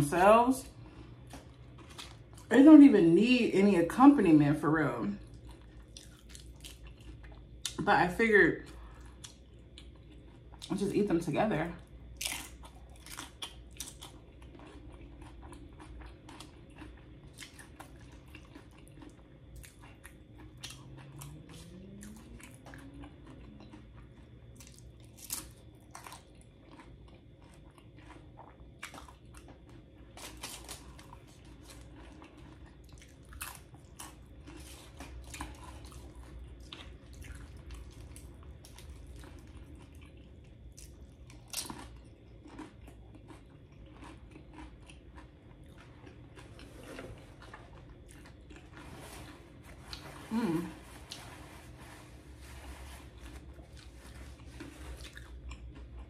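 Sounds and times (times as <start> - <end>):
tortilla chips crunching: 0.0 - 2.8, 5.1 - 7.8, 11.9 - 56.0
chewing: 0.8 - 2.5, 5.1 - 7.8, 8.7 - 10.7, 11.8 - 56.0.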